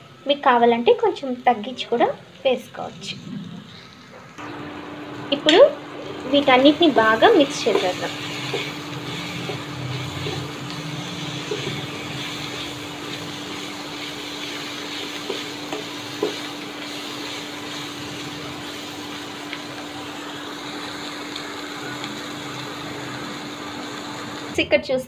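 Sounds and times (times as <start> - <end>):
steady low hum: 0.0 - 24.5
food sizzling in a pan: 0.0 - 24.6.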